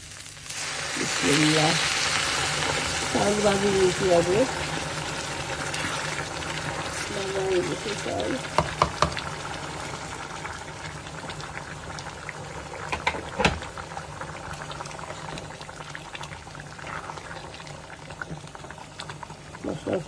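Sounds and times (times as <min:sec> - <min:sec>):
pot of food boiling: 0:00.0 - 0:20.0.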